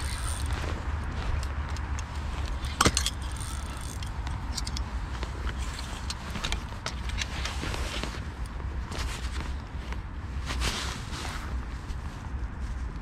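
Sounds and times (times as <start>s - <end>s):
fishing gear clicks and rattles: 0.0s - 10.0s.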